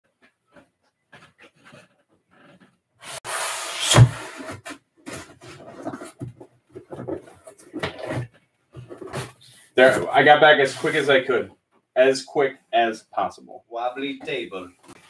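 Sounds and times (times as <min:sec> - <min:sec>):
rustling and knocking: 0:04.5 - 0:10.1.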